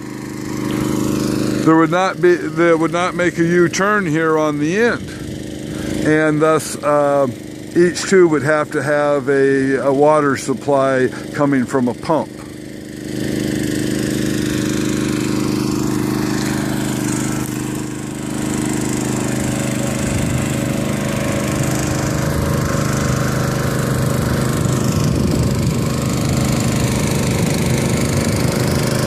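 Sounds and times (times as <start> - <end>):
small engine water pump running: 0.0 - 29.0.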